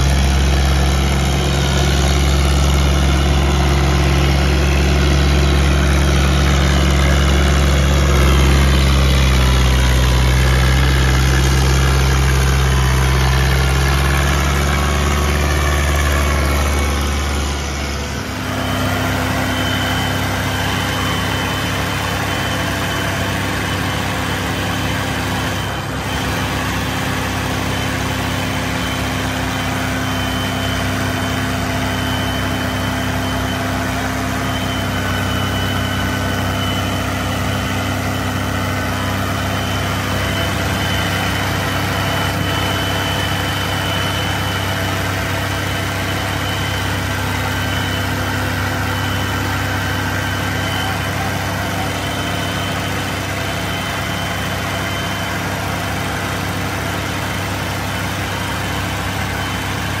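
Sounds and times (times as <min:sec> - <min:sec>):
tractor diesel engine running: 0:00.0 - 1:00.0.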